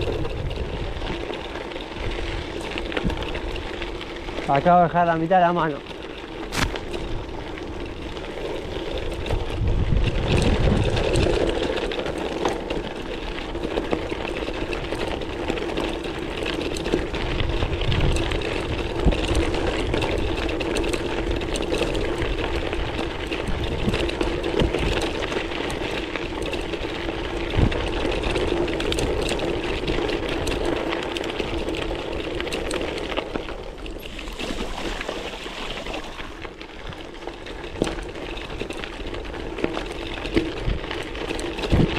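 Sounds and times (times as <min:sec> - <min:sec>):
wind buffeting microphone: 0:00.0 - 0:03.9, 0:06.5 - 0:11.7, 0:17.0 - 0:32.6, 0:33.7 - 0:41.9
bike rattling: 0:00.0 - 0:41.9
bike tyres rolling over stones: 0:00.0 - 0:41.9
small stones crunching: 0:06.0 - 0:12.4, 0:20.2 - 0:41.9.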